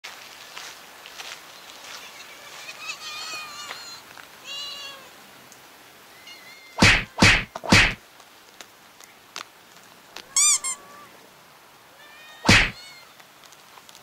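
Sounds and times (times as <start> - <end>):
loud short thump: 6.8 - 8.0, 12.5 - 12.8
kittens mewing: 12.4 - 13.0.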